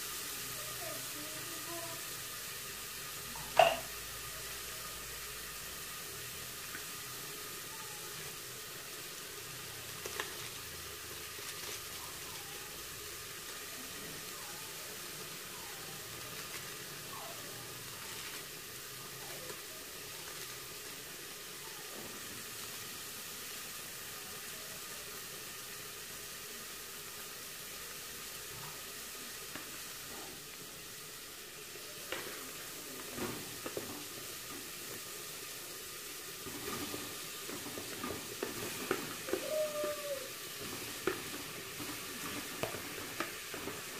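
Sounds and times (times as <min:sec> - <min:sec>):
food sizzling in pots: 0:00.0 - 0:43.9
metal pots and lids knocking: 0:03.6 - 0:03.9.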